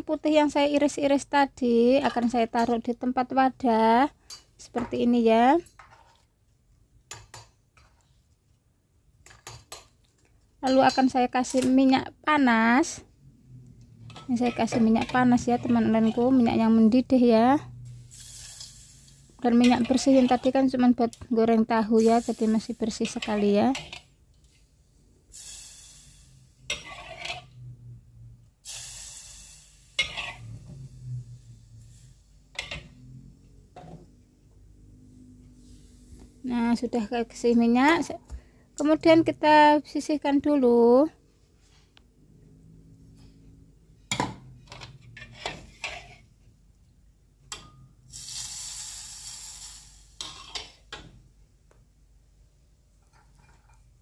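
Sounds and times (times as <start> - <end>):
metal wok and pot clanking: 10.6 - 11.9, 14.0 - 17.4, 19.5 - 20.8, 22.0 - 24.1, 26.6 - 27.5, 29.8 - 30.8, 32.5 - 33.1, 47.5 - 48.0, 50.2 - 51.1
metal ladle scraping a wok: 14.0 - 17.0, 17.8 - 20.8, 22.0 - 24.1, 25.4 - 27.7, 28.7 - 33.2, 44.8 - 46.4, 48.1 - 50.8
hot oil sizzling on garlic: 14.0 - 24.1, 25.3 - 27.5, 28.6 - 33.3, 48.1 - 50.7.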